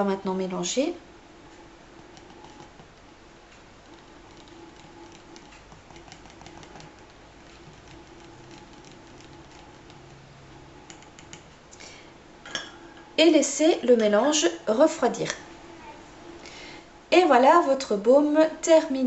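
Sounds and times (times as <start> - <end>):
whisk clicking against jar: 3.9 - 10.2, 10.8 - 11.5.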